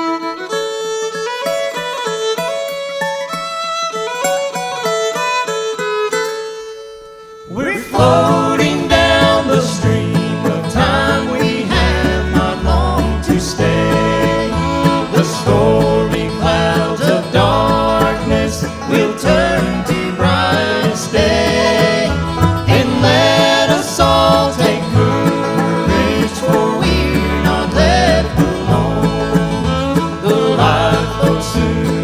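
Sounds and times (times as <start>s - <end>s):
bluegrass band playing: 0.0s - 32.0s
upright bass: 7.5s - 32.0s.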